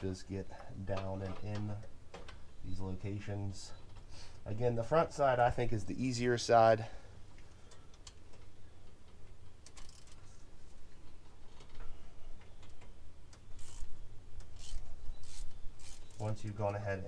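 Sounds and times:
ratchet clicking: 0:09.6 - 0:10.2, 0:13.5 - 0:16.2.

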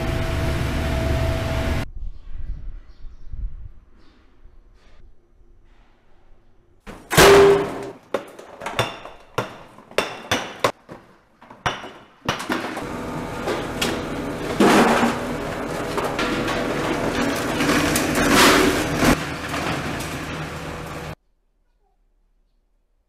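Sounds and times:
salt chunks rattling in hopper: 0:12.4 - 0:21.2.

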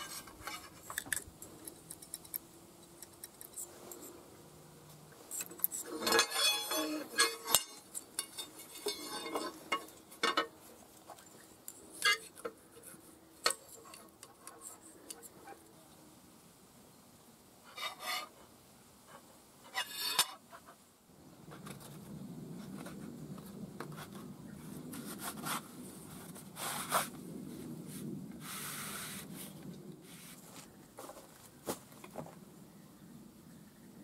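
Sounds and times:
handling rubs and clicks: 0:00.0 - 0:04.2, 0:05.2 - 0:10.3
steel straightedge scraping metal: 0:05.3 - 0:10.5, 0:12.0 - 0:12.4, 0:17.7 - 0:18.3, 0:19.7 - 0:20.4.

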